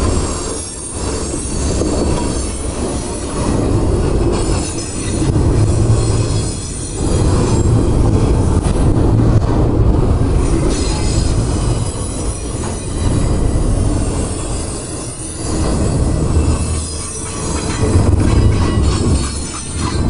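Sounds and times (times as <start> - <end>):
high-pitched wheel squeal: 0.0 - 3.7, 4.3 - 7.8, 10.5 - 20.0
train wheels rumbling on rails: 0.0 - 20.0.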